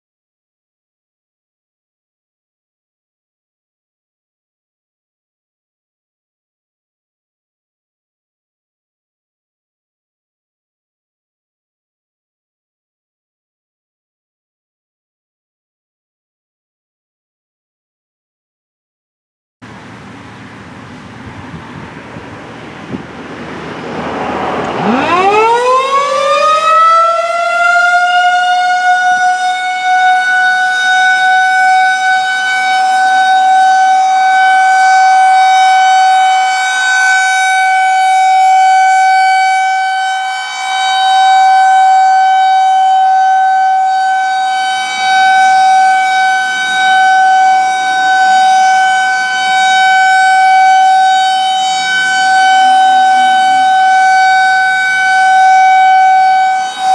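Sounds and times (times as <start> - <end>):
rotating warning siren: 21.7 - 56.9.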